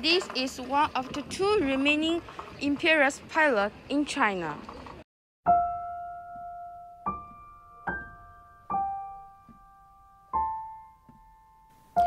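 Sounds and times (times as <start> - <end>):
single piano notes ringing: 5.5 - 12.0.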